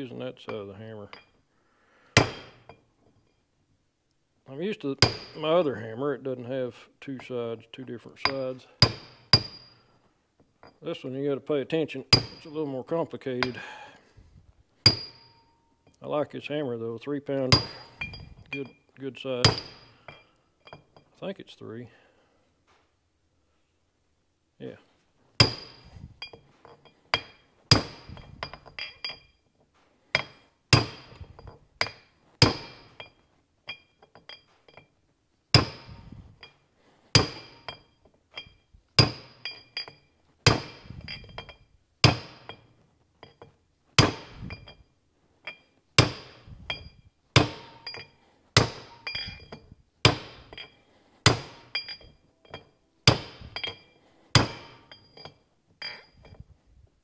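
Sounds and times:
hammer striking metal driver: 0:02.2 - 0:02.8, 0:05.0 - 0:05.5, 0:08.2 - 0:09.8, 0:12.1 - 0:12.5, 0:14.9 - 0:15.5, 0:17.5 - 0:18.7, 0:19.4 - 0:20.2, 0:27.2 - 0:29.2, 0:30.2 - 0:33.1, 0:35.6 - 0:36.1, 0:37.2 - 0:37.8, 0:38.4 - 0:42.6, 0:44.0 - 0:44.8, 0:45.5 - 0:56.2.

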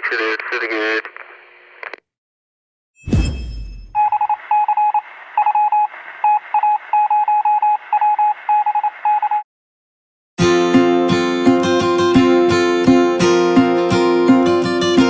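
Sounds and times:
radio hiss: 0:00.0 - 0:02.0
morse code beeps: 0:03.9 - 0:09.4
acoustic guitar music: 0:10.4 - 0:15.0.

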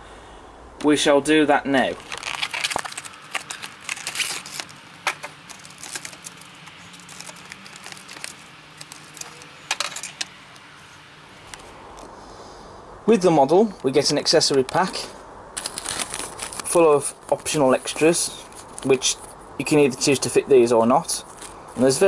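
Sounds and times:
card and plastic clicks and rustles: 0:01.9 - 0:12.1, 0:15.6 - 0:17.5.

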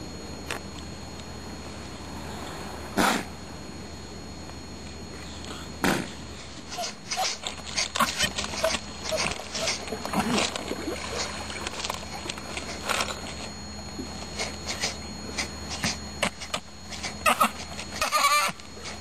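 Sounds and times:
teeth clicking and scraping on wood: 0:06.7 - 0:13.5.

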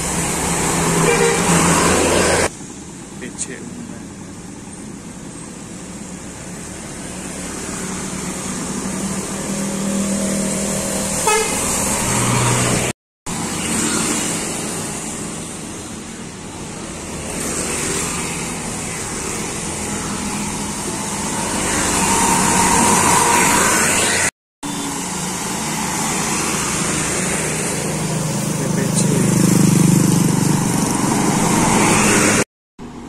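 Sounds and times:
vehicles passing on a wet road: 0:00.0 - 0:33.0
short horn toot: 0:11.2 - 0:11.8.

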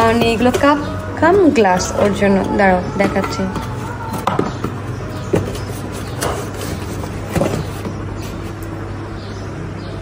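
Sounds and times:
steady low hum: 0:00.0 - 0:10.0
cardboard box rustling: 0:05.2 - 0:08.6.

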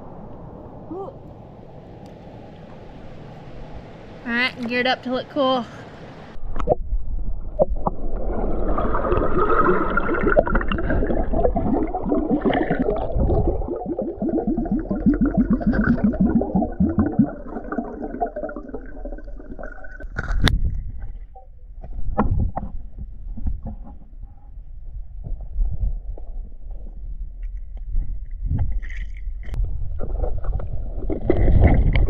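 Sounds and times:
underwater creek water gurgling: 0:06.4 - 0:24.0, 0:28.4 - 0:32.0.

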